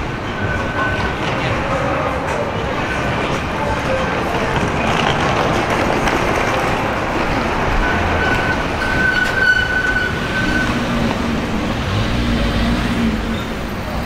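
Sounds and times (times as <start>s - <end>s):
city street traffic: 0.0s - 14.0s
steady high squeal: 6.8s - 11.0s.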